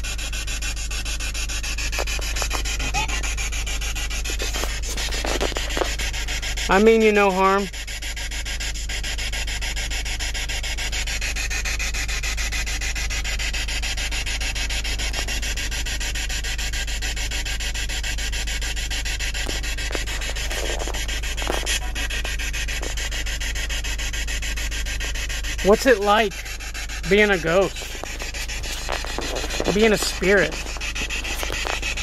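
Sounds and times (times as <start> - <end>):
steady rushing noise: 25.7 - 32.0.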